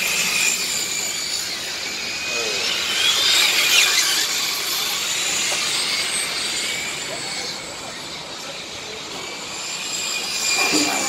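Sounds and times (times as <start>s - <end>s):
small motors whining and revving: 0.0s - 11.0s.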